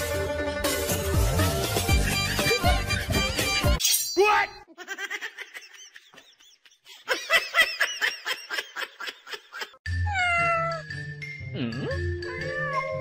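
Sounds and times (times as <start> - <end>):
kitten mewing: 10.1 - 10.9.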